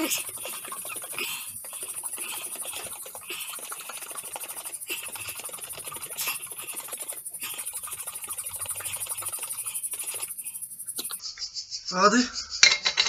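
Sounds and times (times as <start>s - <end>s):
cream sloshing in shaken pot: 0.0s - 10.3s.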